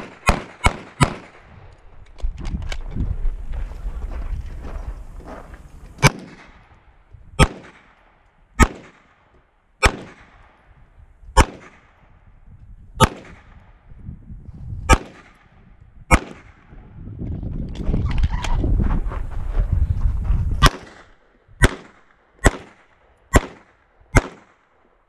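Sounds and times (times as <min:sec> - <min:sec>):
pistol shots: 0:00.0 - 0:01.5, 0:06.0 - 0:06.7, 0:07.4 - 0:10.7, 0:11.4 - 0:12.1, 0:13.0 - 0:13.8, 0:14.9 - 0:16.7, 0:20.6 - 0:24.8.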